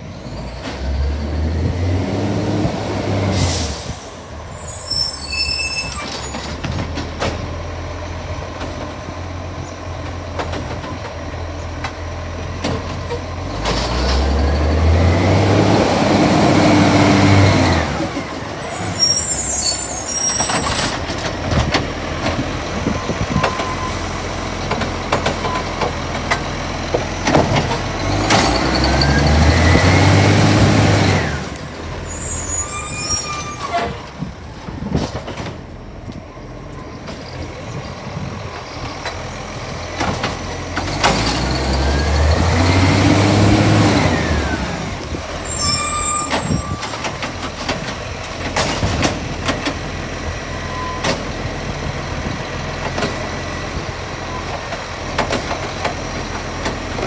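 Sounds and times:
garbage truck engine revving: 0.4 - 3.9, 12.2 - 33.2, 38.0 - 50.6.

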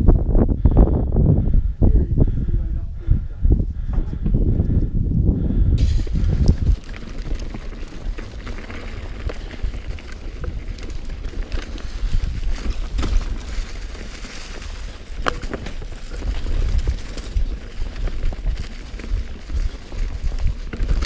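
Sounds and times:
wind buffeting microphone: 0.0 - 21.0
bike tyres rolling over dirt: 5.5 - 21.0
bike clicks and rattles: 5.8 - 21.0.

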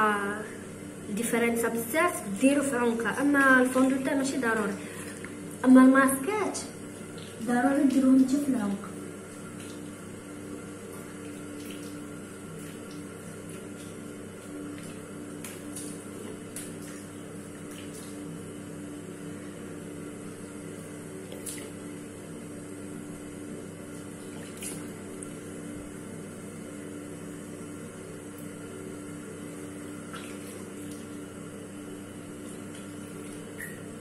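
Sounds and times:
steady hum: 0.0 - 34.0
tap water running: 2.2 - 22.2, 29.4 - 34.0
hands splashing water: 10.9 - 18.3, 21.2 - 21.8, 24.2 - 25.4, 30.0 - 31.2.

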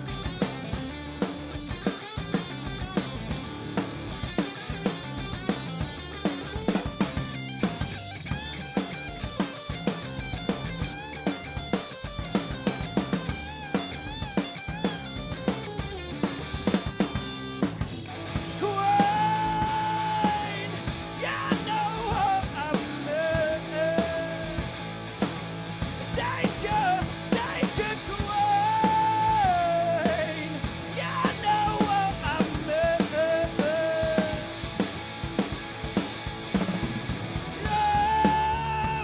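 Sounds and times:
bass guitar: 0.0 - 39.0
drum kit: 0.0 - 39.0
electric guitar: 0.0 - 39.0
man singing: 18.5 - 24.7, 26.0 - 34.6, 37.6 - 39.0.

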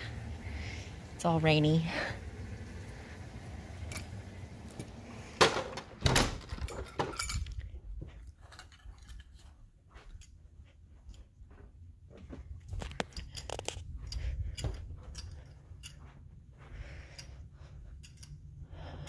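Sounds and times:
steady rain hiss: 0.0 - 5.5
indoor footsteps: 2.3 - 18.6
handling noises: 3.3 - 10.5
door shutting: 3.6 - 7.2.

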